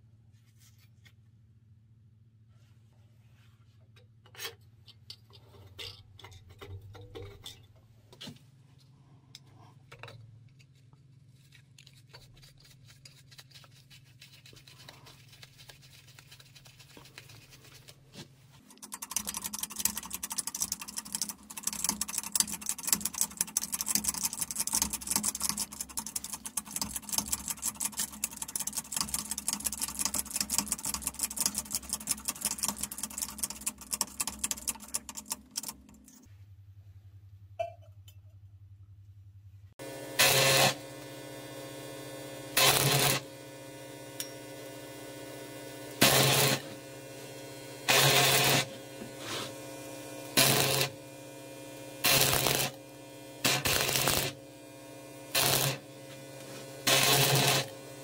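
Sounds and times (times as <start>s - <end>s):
power tool rapid rattling: 18.7s - 36.1s, 42.6s - 43.3s, 46.0s - 51.0s, 52.0s - 54.5s, 55.3s - 58.0s.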